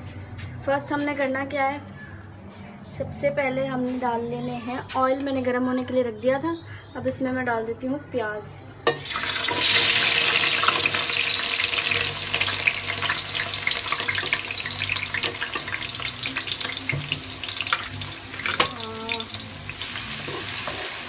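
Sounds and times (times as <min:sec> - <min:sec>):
onions sizzling in hot oil: 0:08.9 - 0:21.0.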